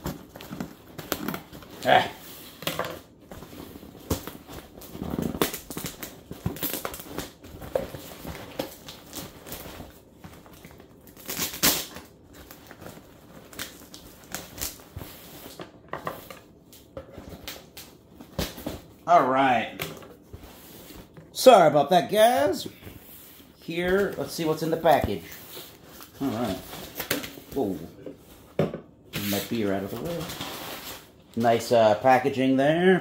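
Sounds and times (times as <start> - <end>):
packing tape tearing: 0.0 - 2.7, 4.0 - 15.6.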